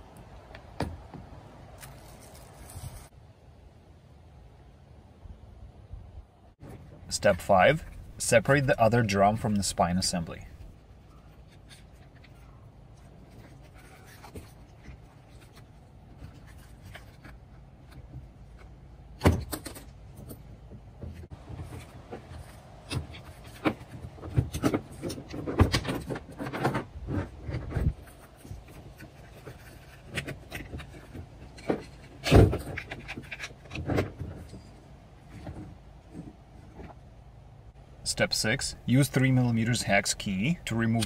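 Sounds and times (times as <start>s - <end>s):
clatter of plastic and metal parts: 10.5s - 37.0s.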